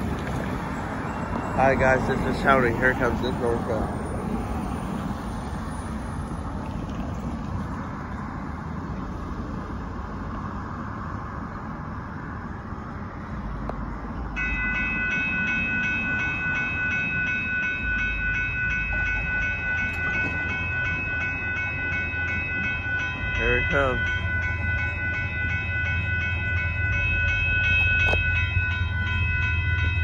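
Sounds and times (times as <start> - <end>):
railroad crossing bell ringing: 0.0 - 6.4, 14.3 - 30.0
road traffic: 0.0 - 30.0
wind: 0.0 - 30.0.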